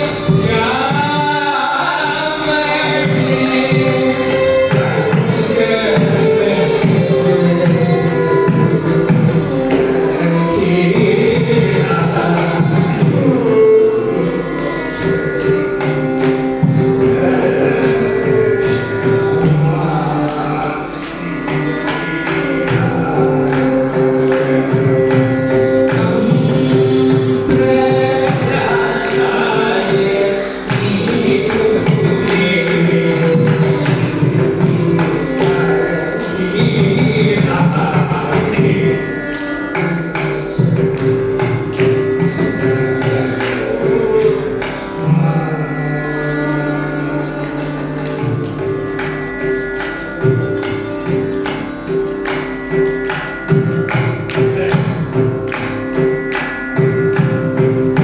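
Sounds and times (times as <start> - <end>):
man singing: 0.0 - 48.7
violin accompaniment: 0.0 - 58.0.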